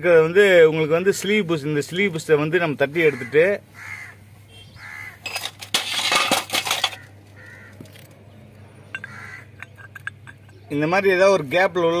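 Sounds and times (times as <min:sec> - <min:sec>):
metal tools clinking: 0:05.2 - 0:07.1, 0:08.9 - 0:10.7.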